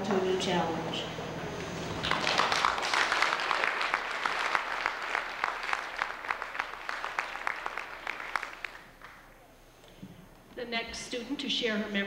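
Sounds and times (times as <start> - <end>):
audience applauding: 2.0 - 9.4.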